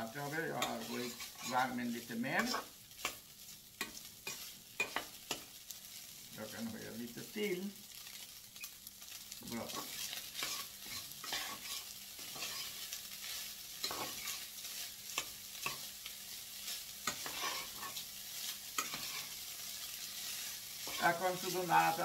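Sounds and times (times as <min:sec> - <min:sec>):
rice sizzling in hot oil: 0:00.0 - 0:22.0
metal spatula scraping pan: 0:00.2 - 0:03.2, 0:03.8 - 0:05.5, 0:09.7 - 0:22.0.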